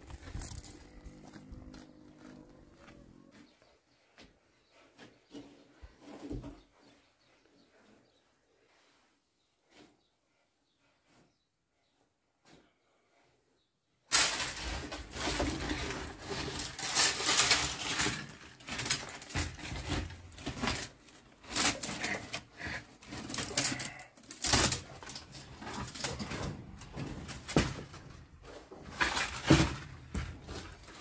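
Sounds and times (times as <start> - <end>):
dry sticks rustling and snapping: 14.1 - 22.4.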